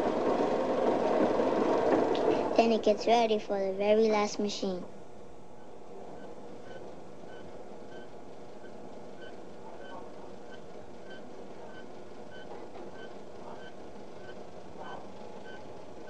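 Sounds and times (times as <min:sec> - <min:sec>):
factory machinery drone: 0:00.0 - 0:03.1.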